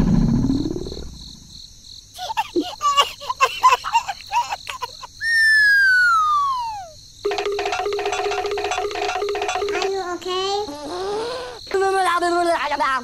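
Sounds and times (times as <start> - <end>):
high squeaky chirps: 2.2 - 11.9
whistle sliding down in pitch: 5.3 - 6.9.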